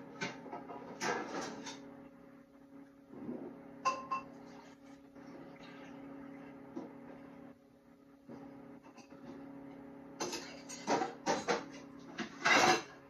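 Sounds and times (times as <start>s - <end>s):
steady low hum: 0.0s - 13.0s
kitchenware knocking and clattering: 0.2s - 1.8s, 3.9s - 4.3s, 10.2s - 13.0s.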